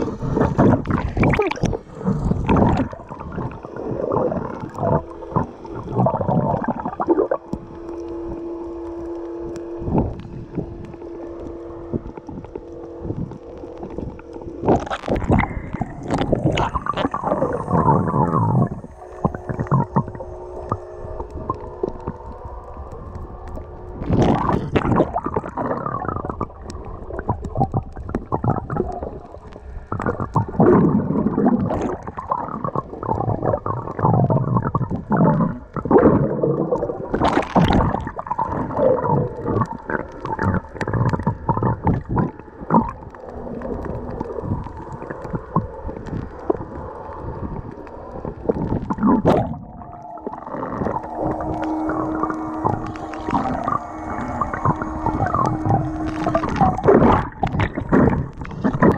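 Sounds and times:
underwater sloshing and gurgling: 0.0s - 58.9s.

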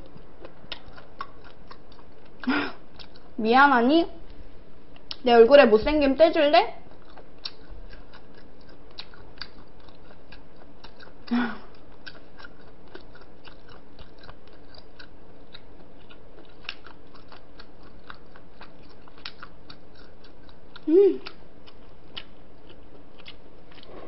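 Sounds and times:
chewing food: 0.0s - 3.4s, 6.8s - 24.0s
wet mouth clicks: 7.0s - 10.2s.

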